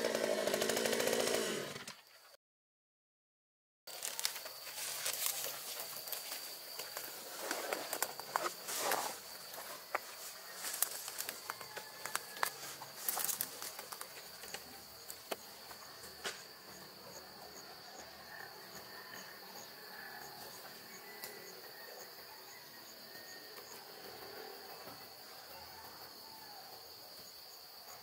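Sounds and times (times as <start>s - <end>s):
hands rustling soil: 3.9s - 16.4s
insects chirring: 3.9s - 28.0s.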